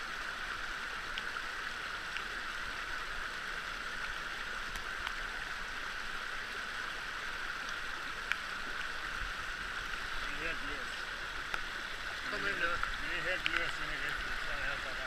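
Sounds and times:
stream rushing over rocks: 0.0 - 15.0
faint clicks: 4.0 - 5.2, 7.6 - 8.9, 11.4 - 11.7, 12.7 - 14.4.

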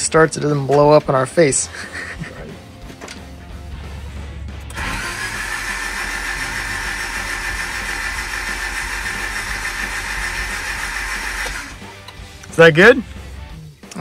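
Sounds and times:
starter motor cranking engine: 4.7 - 11.9.

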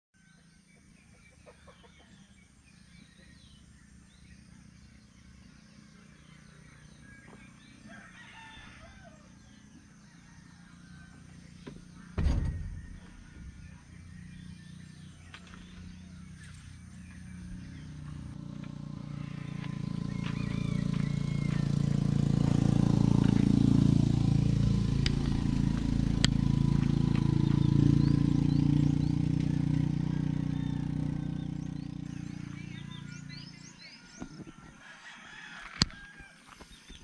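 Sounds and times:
loud thump: 11.6 - 14.6.

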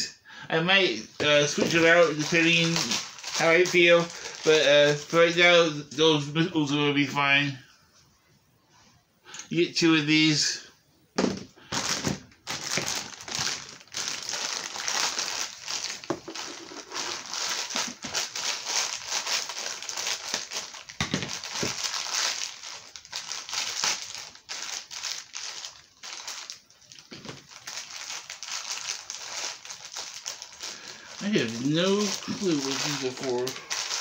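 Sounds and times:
plastic packaging crinkling: 1.0 - 5.8, 11.6 - 34.0.

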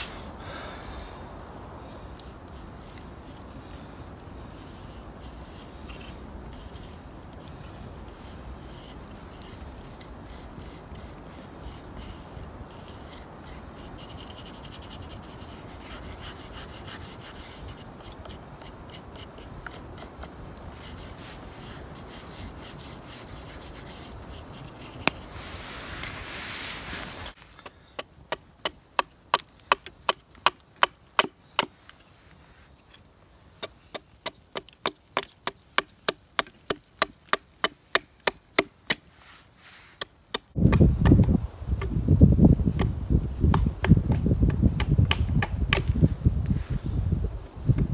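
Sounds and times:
charcoal scratching on wood: 4.5 - 27.7
sharp wooden knocks: 43.5 - 45.9.

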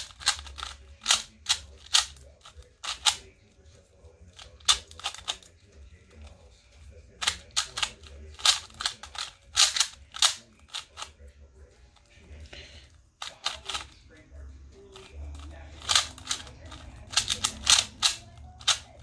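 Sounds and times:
puzzle cube plastic clicks: 0.0 - 3.2, 7.2 - 11.1, 15.0 - 19.0.

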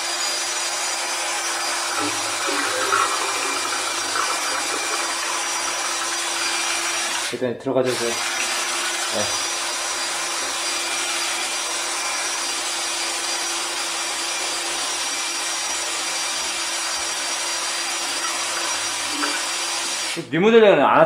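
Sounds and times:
drain cleaning machine grinding: 1.2 - 7.3, 7.9 - 12.2, 16.1 - 20.2.

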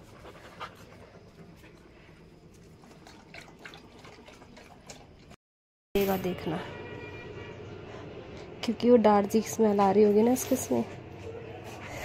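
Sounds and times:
dog lapping water from bowl: 2.5 - 5.4.

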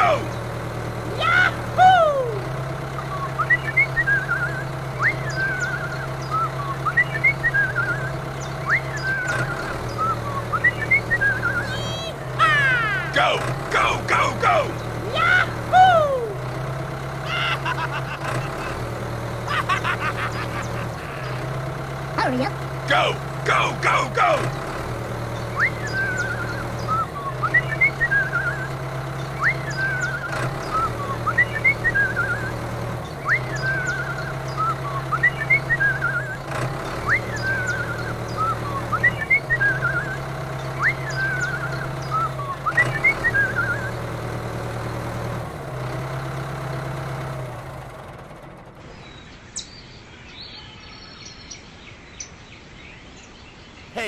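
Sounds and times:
low engine-like hum: 0.0 - 54.0
bird-like whistled chirps: 3.0 - 12.0, 25.4 - 32.6, 33.2 - 44.1.

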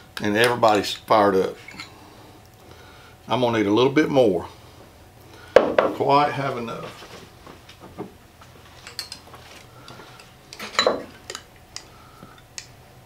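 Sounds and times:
glass clicks and clinks: 8.8 - 9.2, 10.5 - 11.4
glass clattering on table: 10.6 - 11.4.

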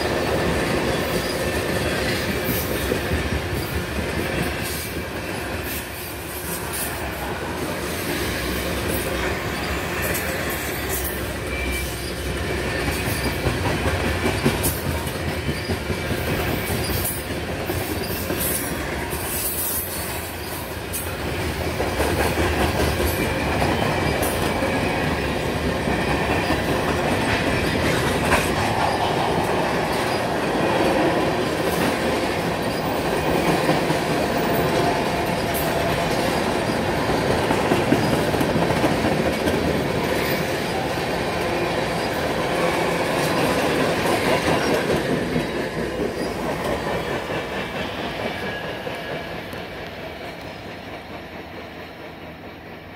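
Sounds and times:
steel wheels rumbling on rail: 0.0 - 52.9
high wheel squeal: 8.9 - 13.4
wheels clicking over rail joints: 12.0 - 51.6.

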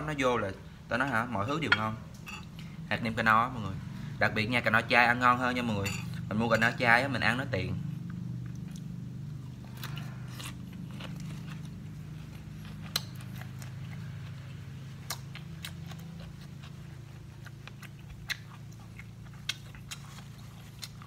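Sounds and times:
low steady hum: 0.0 - 21.0
person chewing crispy food: 8.0 - 21.0.

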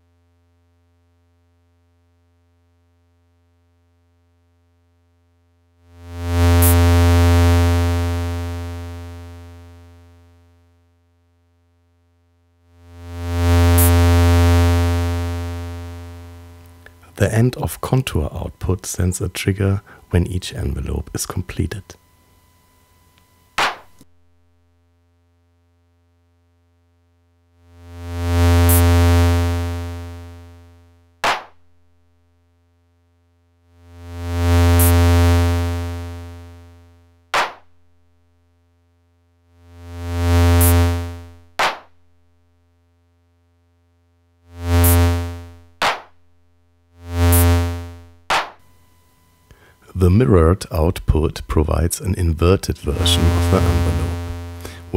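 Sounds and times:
faint low hum: 16.3 - 24.0, 48.8 - 54.9
low synthesizer tone swells: 52.7 - 54.9.

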